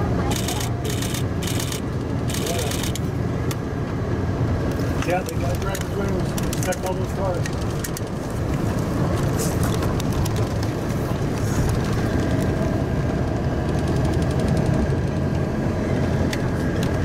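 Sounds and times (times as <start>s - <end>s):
bus engine and tyres rumbling: 0.0s - 17.0s
light clicks and rattles: 5.0s - 12.6s.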